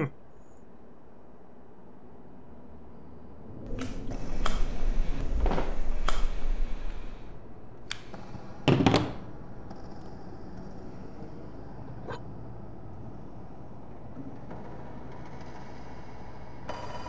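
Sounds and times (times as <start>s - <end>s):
low room hum: 0.0s - 17.0s
sharp clicks: 3.7s - 7.3s, 7.9s - 8.2s.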